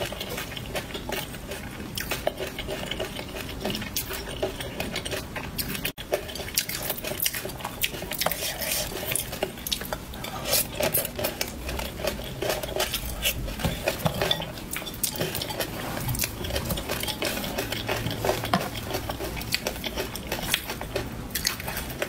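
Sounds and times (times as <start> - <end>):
spatula scraping and tapping plate: 18.0 - 18.8.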